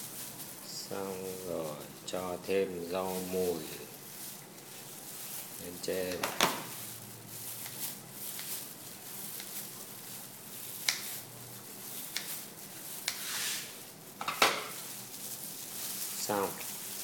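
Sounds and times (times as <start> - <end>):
plastic gloves rustling: 0.0 - 17.0
scissors snipping herbs: 5.9 - 6.8, 7.6 - 9.7, 10.7 - 11.3, 11.9 - 13.3.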